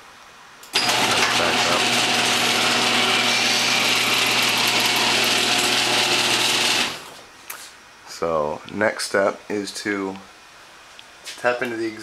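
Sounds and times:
garage door opener motor humming: 0.7 - 7.3.

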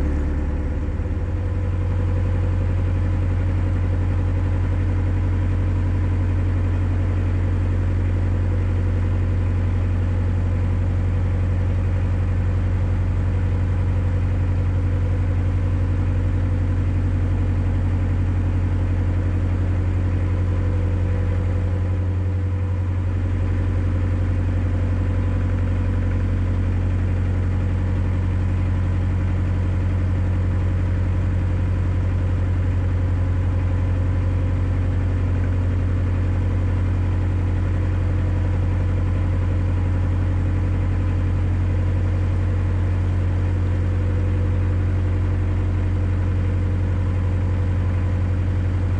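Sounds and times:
boat diesel engine droning: 0.0 - 48.9.

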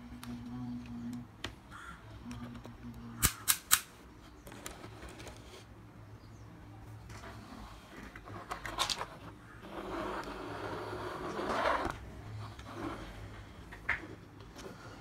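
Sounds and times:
plastic tracks scraping on wood: 7.1 - 14.9.

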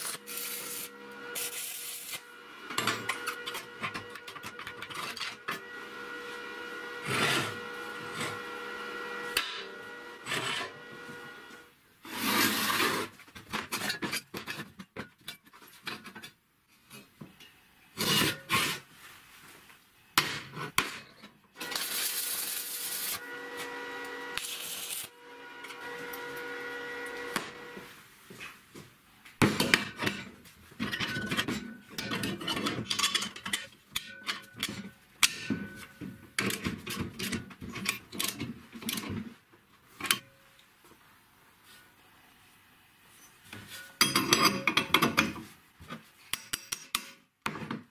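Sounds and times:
steel parts clanking: 29.6 - 39.1.

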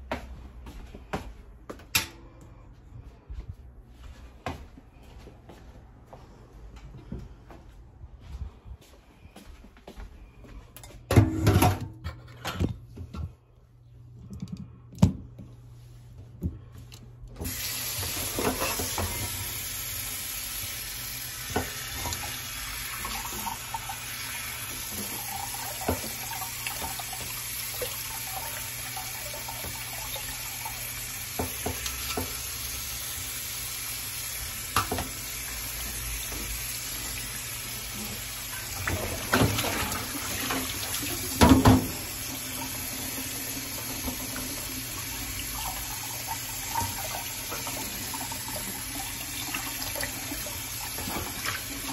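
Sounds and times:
tap water running: 17.4 - 51.9.

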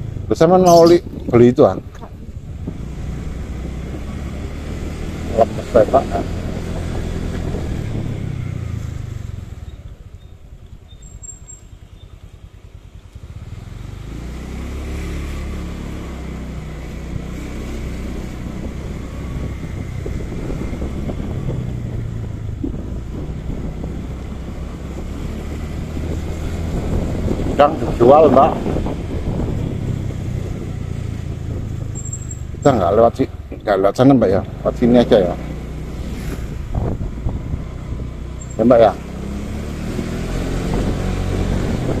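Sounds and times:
motorcycle engine running: 0.0 - 42.0.

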